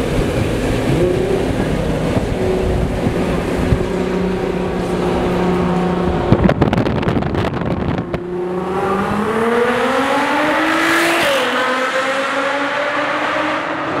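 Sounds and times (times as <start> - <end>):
sports car engine accelerating: 0.0 - 14.0
exhaust pops and crackles: 5.6 - 8.3.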